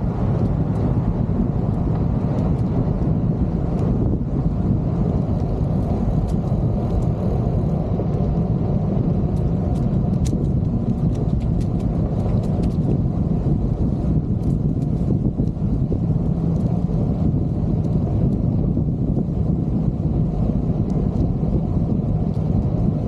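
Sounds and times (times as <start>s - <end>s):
wind rushing over microphone: 0.0s - 23.0s.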